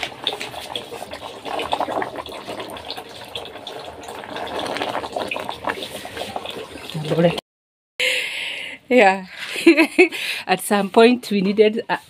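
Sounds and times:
water sloshing and bubbling in pot: 0:00.0 - 0:07.4.

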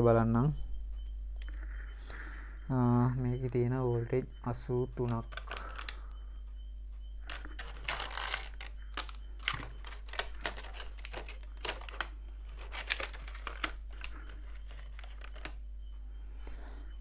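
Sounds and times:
low hum: 0:00.0 - 0:17.0
plastic case clicking and crinkling: 0:05.0 - 0:06.0, 0:07.3 - 0:15.6.

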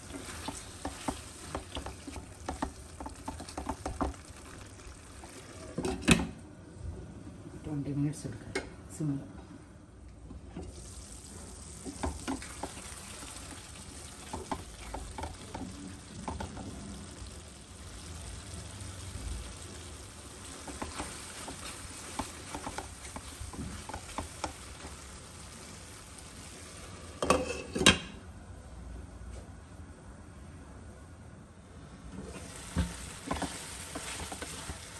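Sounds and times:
wooden spatula stirring: 0:00.0 - 0:05.9, 0:11.7 - 0:17.0, 0:19.5 - 0:26.8, 0:32.4 - 0:34.9
curry sizzling in a pan: 0:00.0 - 0:06.2, 0:10.6 - 0:27.8, 0:32.2 - 0:34.9.

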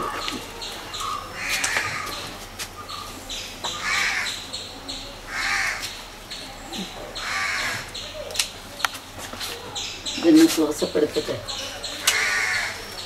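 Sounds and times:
crow cawing: 0:01.0 - 0:02.2, 0:03.7 - 0:04.4, 0:05.3 - 0:05.8, 0:07.2 - 0:08.0, 0:12.0 - 0:12.8.

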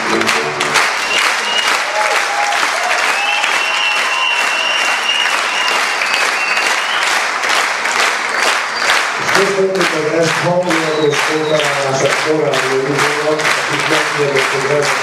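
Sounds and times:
large audience applauding: 0:00.0 - 0:15.0.

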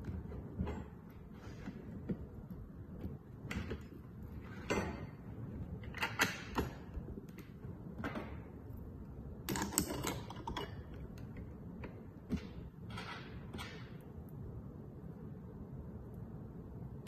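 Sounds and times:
metal lock parts clicking: 0:05.8 - 0:08.2, 0:09.4 - 0:14.3.

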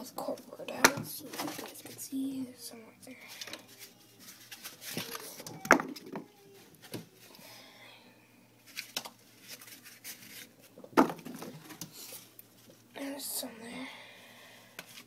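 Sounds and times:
cardboard knocking and rustling: 0:11.0 - 0:11.8.

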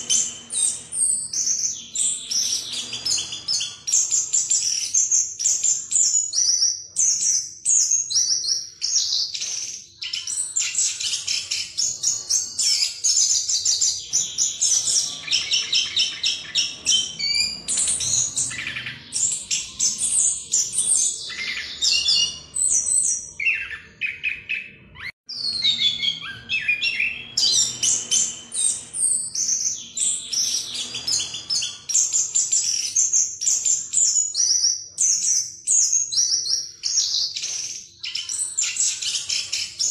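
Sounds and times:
thrush singing rapid trills: 0:00.0 - 0:06.3, 0:08.6 - 0:34.1.

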